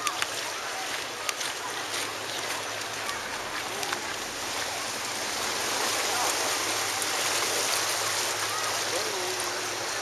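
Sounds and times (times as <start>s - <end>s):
sea water washing against rocks: 0.0s - 10.0s.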